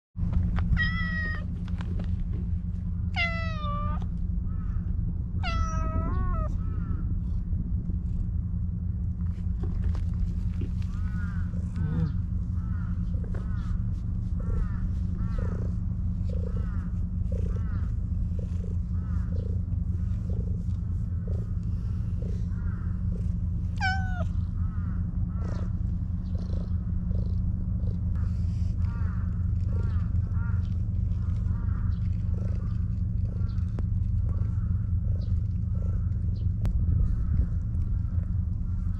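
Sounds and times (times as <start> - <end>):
steady low rumble: 0.2 - 38.9
cat meowing: 0.7 - 1.5, 3.2 - 4.1, 5.4 - 7.0, 23.8 - 24.4
cat purring: 13.0 - 24.6, 25.3 - 28.7, 31.2 - 37.3.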